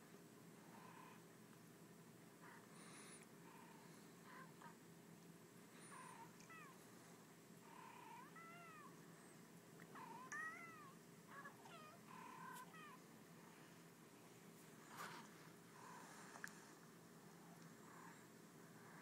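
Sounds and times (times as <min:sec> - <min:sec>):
cats meowing through laptop speakers: 0:08.1 - 0:09.0, 0:10.0 - 0:13.0.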